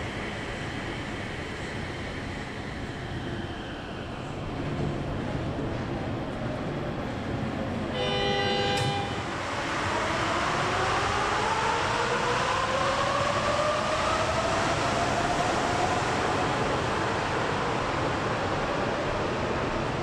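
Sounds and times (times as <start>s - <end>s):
train rolling noise: 0.0s - 20.0s.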